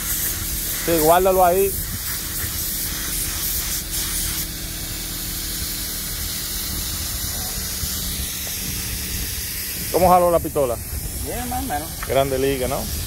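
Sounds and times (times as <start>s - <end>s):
paint spray gun hissing: 0.0s - 13.0s
steady low hum: 0.0s - 13.0s.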